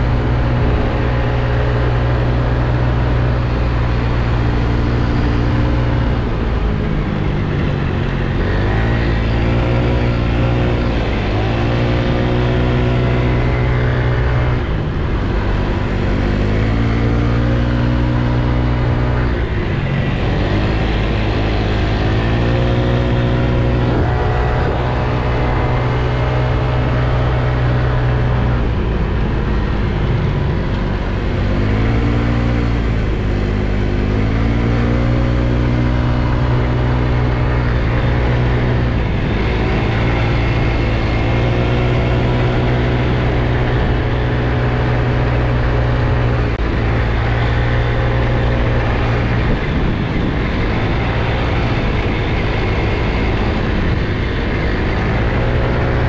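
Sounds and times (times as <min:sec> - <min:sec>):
scooter engine revving: 0:00.0 - 0:56.0.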